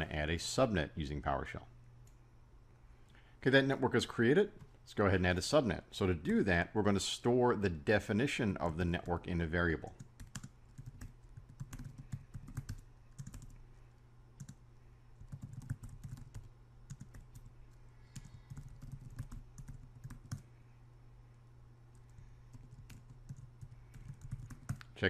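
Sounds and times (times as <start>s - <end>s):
steady low hum: 0.0s - 25.0s
typing on computer keyboard: 10.0s - 13.6s, 14.4s - 14.6s, 15.2s - 17.5s, 18.2s - 20.4s, 22.5s - 24.8s.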